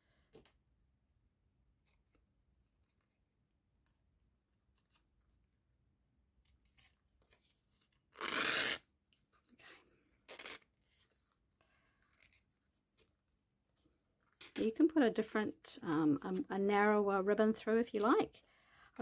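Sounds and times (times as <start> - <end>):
ribbon rasping through paper tag: 8.1 - 8.8.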